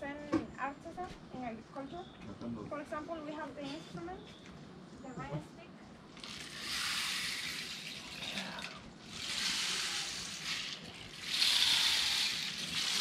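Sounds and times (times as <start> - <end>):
rain stick pebbles trickling: 6.2 - 13.0.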